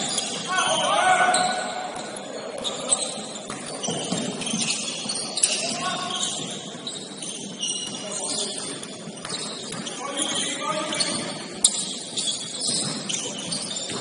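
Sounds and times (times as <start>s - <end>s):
shoes squeaking on hardwood court: 0.0s - 14.0s.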